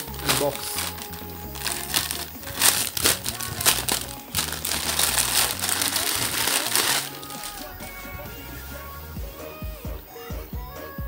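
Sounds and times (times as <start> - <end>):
plastic bag crinkling: 0.0 - 7.8
background music with low notes: 0.0 - 11.0.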